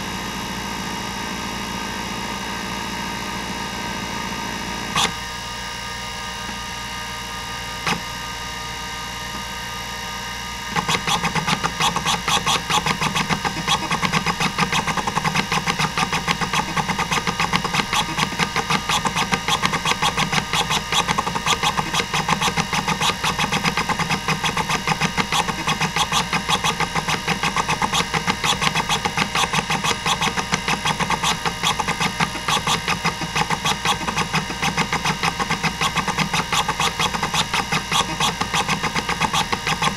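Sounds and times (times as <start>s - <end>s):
hard drive spindle whir: 0.0s - 39.9s
single click: 5.0s - 5.2s.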